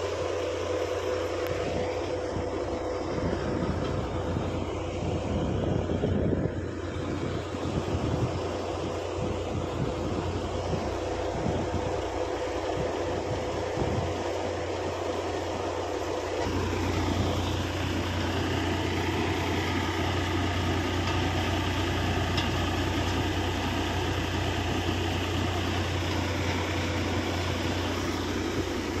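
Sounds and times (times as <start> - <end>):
low engine hum: 0.0 - 29.0
threshing machine droning: 0.0 - 29.0.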